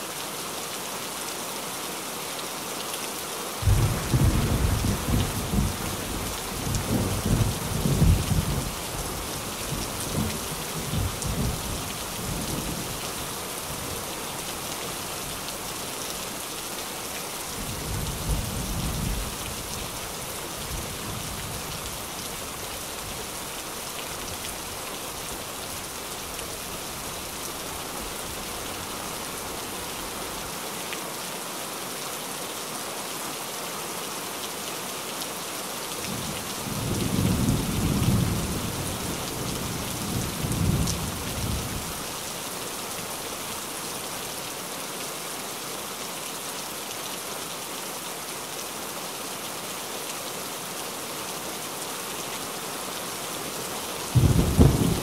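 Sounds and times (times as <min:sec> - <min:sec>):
rain drumming on a tin roof: 0:00.1 - 0:32.0, 0:33.9 - 0:55.0
rolling thunder: 0:03.6 - 0:05.9, 0:54.2 - 0:55.0.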